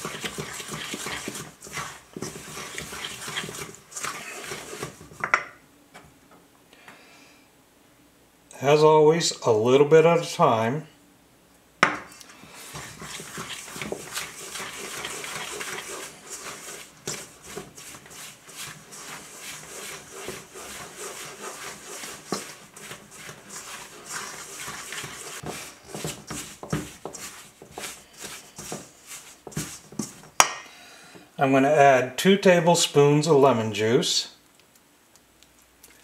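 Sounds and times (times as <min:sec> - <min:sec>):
metal spoon scraping a bowl: 0:00.0 - 0:05.3, 0:12.7 - 0:30.2.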